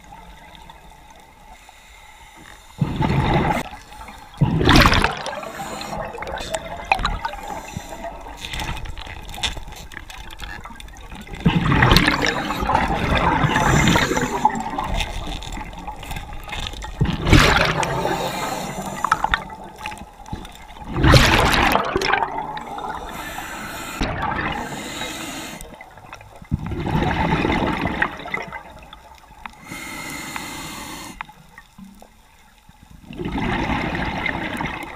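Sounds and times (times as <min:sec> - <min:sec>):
exhaled bubbles gurgling underwater: 0:02.7 - 0:34.9
regulator hiss: 0:05.3 - 0:08.3, 0:12.0 - 0:14.6, 0:17.9 - 0:19.4, 0:22.6 - 0:25.8, 0:29.6 - 0:31.4.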